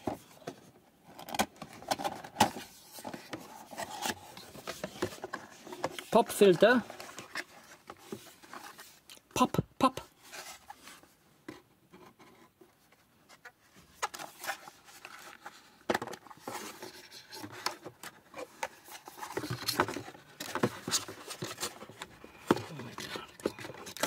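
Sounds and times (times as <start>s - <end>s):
cardboard scraping and rubbing: 2.3s - 9.0s, 10.1s - 11.2s.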